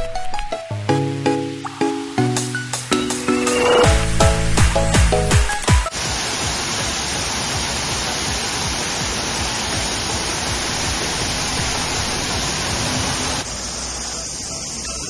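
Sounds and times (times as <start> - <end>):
waterfall rushing: 1.4 - 15.0.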